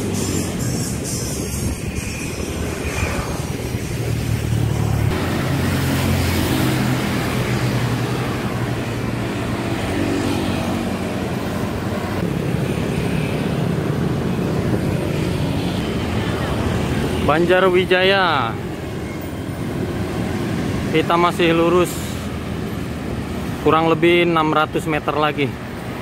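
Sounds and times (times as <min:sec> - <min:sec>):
wind on microphone: 0:00.0 - 0:10.0, 0:10.6 - 0:17.2
passing motorcycles: 0:00.0 - 0:26.0
road traffic: 0:00.0 - 0:26.0.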